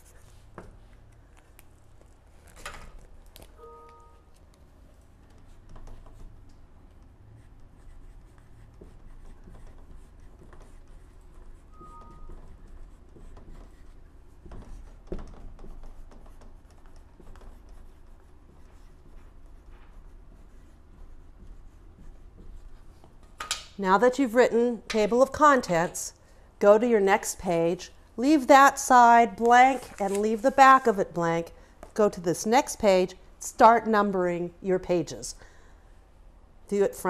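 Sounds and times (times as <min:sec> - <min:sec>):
marker scratching on whiteboard: 0:04.9 - 0:23.3
marker squeaks: 0:11.6 - 0:13.8.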